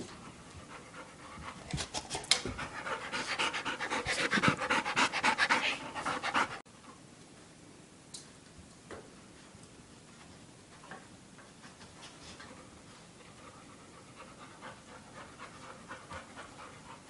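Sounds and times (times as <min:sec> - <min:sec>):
dog panting rapidly: 0:00.2 - 0:06.6, 0:12.0 - 0:17.0.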